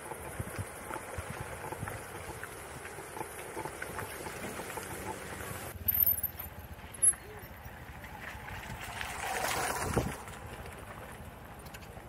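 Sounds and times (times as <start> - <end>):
skateboard rolling over rough ground: 0.0 - 5.8, 7.5 - 12.0
wind on microphone: 9.6 - 10.3.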